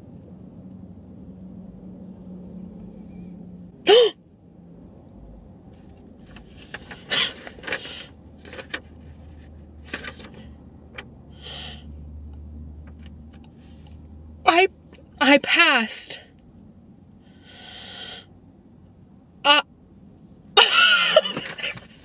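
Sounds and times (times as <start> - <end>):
woman squealing: 20.6 - 21.4.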